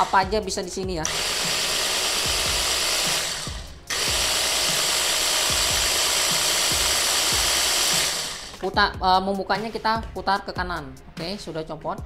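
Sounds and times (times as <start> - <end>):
hand blender motor hum: 0.0 - 0.4, 1.0 - 8.7.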